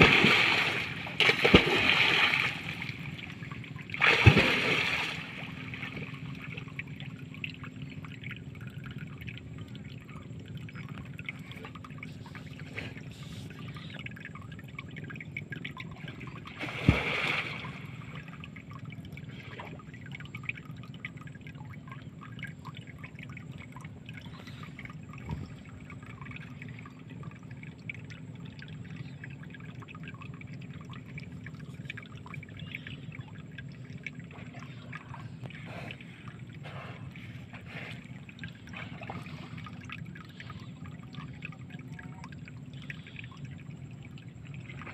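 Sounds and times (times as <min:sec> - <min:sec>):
water splash: 0:00.0 - 0:06.6, 0:16.5 - 0:18.3
faint steady hum: 0:00.0 - 0:44.9
water lapping and trickling: 0:00.0 - 0:44.9.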